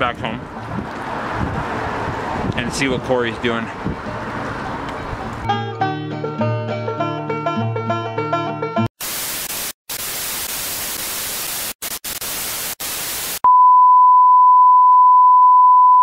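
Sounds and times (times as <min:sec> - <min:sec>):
plucked-string music: 0:04.6 - 0:08.9
tv static hiss: 0:09.0 - 0:13.4.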